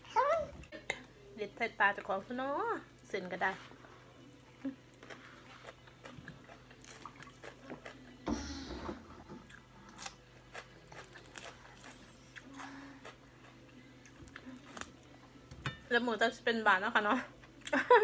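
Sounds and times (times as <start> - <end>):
chewing raw vegetables: 4.5 - 8.2, 9.4 - 15.1.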